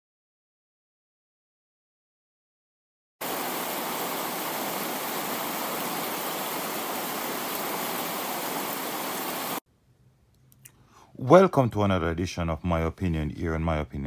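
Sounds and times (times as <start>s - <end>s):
static-like rushing hiss: 3.2s - 9.6s.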